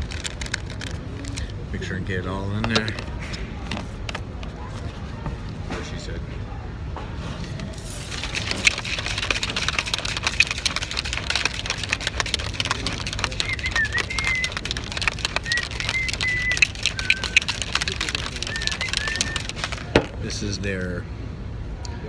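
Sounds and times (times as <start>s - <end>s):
shaker bottle rattling and sloshing: 0.0s - 4.9s, 7.8s - 20.5s
high chirps: 15.3s - 19.6s.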